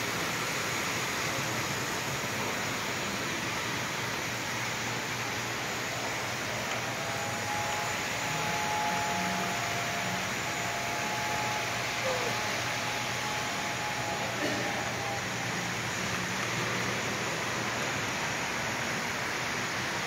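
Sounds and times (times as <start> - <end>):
room hum: 0.0 - 20.0
faint high steady tone: 5.5 - 17.3.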